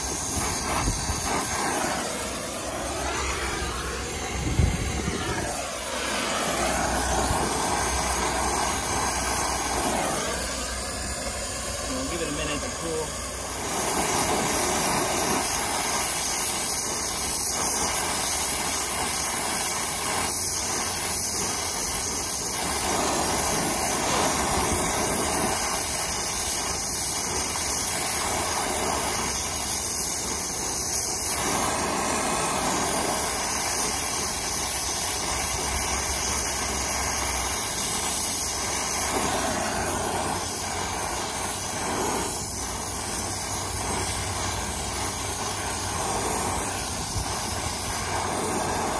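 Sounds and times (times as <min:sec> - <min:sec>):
torch flame hissing: 0:00.0 - 0:48.9.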